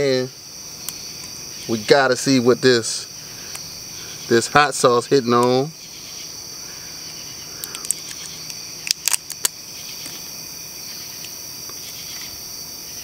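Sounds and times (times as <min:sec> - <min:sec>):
crickets chirring: 0:00.0 - 0:13.0
sharp clicks: 0:07.6 - 0:10.2.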